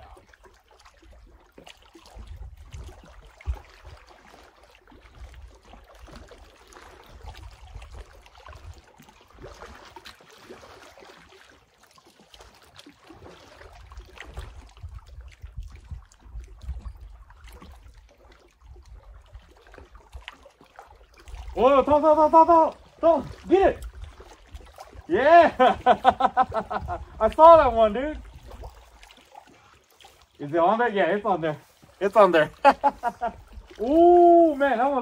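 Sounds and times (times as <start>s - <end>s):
small waves lapping on rocks: 0.0s - 35.0s
wind rumble on microphone: 2.1s - 4.0s, 7.0s - 8.9s, 13.7s - 19.9s, 23.0s - 29.0s.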